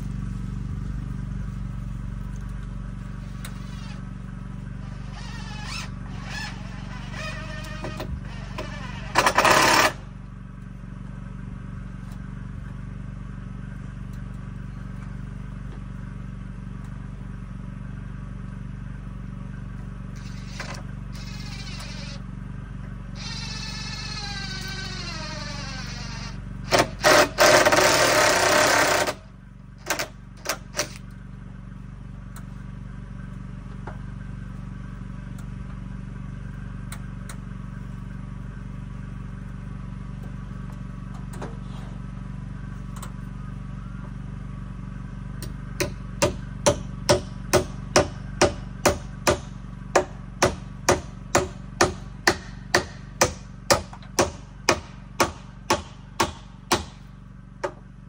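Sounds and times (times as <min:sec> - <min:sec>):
cordless drill driving screw: 0:04.8 - 0:10.0, 0:20.2 - 0:22.2, 0:23.2 - 0:29.2
hammer striking wood: 0:45.8 - 0:57.8.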